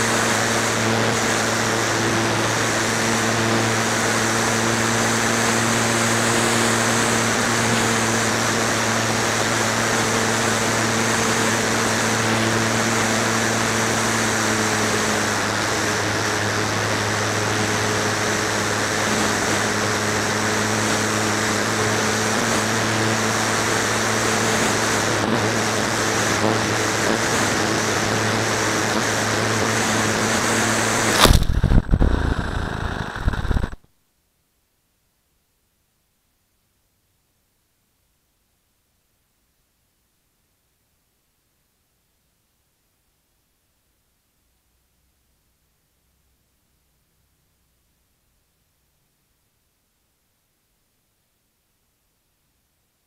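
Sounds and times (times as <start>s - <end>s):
electric motor and propeller: 0.0s - 33.8s
rush of air: 31.1s - 33.8s.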